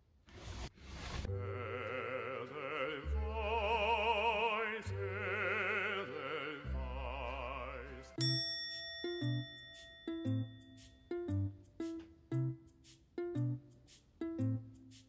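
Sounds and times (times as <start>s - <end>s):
operatic singing: 1.3s - 8.2s
orchestral accompaniment: 1.3s - 15.0s.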